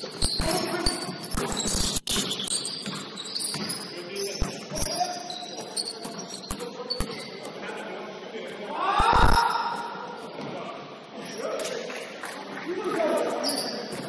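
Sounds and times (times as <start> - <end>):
basketball bouncing on gym floor: 0.0 - 7.3
sneaker squeaks: 0.0 - 7.8, 11.2 - 14.0.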